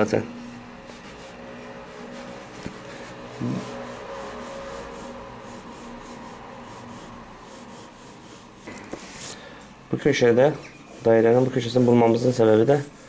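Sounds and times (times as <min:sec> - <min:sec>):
faint steady hum: 0:00.0 - 0:13.0
pencil scratching on paper: 0:00.8 - 0:09.4, 0:10.9 - 0:13.0.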